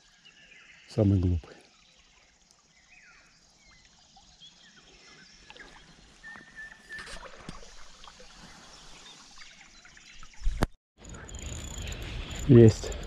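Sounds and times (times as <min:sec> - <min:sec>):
small birds chirping and whistling: 0:04.4 - 0:07.2, 0:08.4 - 0:13.0.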